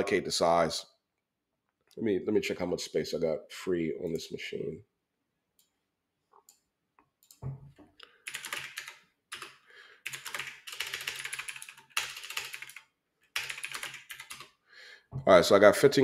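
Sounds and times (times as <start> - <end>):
keyboard typing: 8.1 - 14.6.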